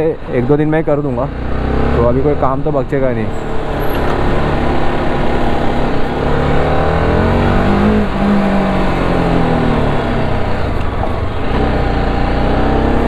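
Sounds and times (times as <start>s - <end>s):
motorcycle engine pulling away: 3.4s - 13.0s.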